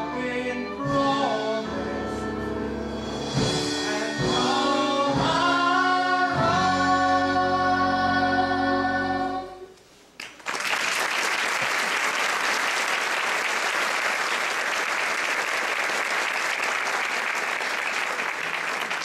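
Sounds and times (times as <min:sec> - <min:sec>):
audience applause: 0:10.2 - 0:19.0.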